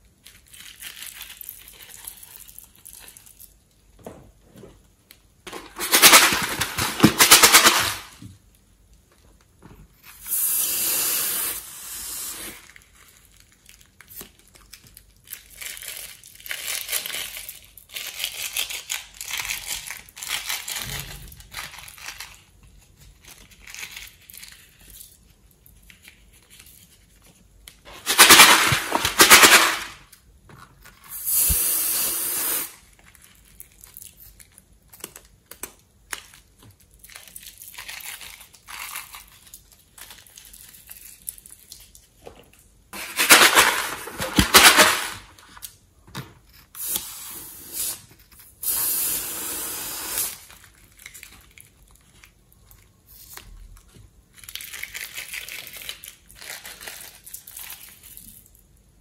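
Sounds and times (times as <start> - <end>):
liquid squirting from balloon: 10.2 - 12.6, 31.1 - 32.8, 48.6 - 50.5.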